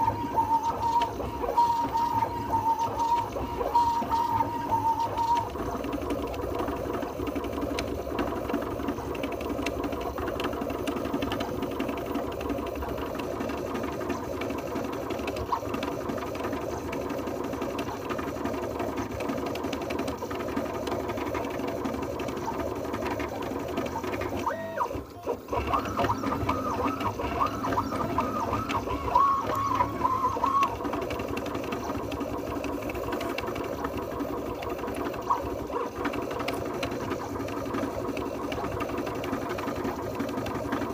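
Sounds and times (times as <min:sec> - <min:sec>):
rising and falling motor chirps: 0:00.0 - 0:05.8, 0:23.9 - 0:30.8
printer motors whining and buzzing: 0:00.0 - 0:40.9.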